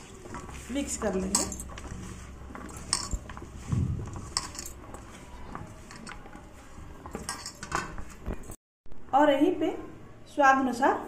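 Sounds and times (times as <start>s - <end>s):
hand mixing food in flour: 0.0s - 7.4s.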